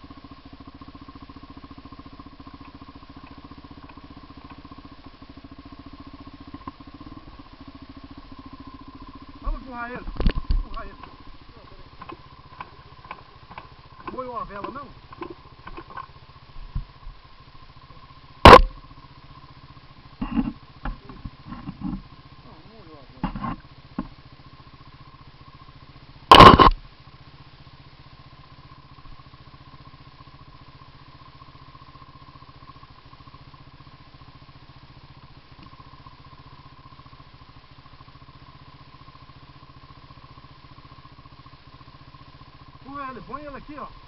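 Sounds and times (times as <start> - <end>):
quad bike engine idling: 0.0 - 44.0
loud sharp bang: 18.4 - 18.8, 26.3 - 26.8.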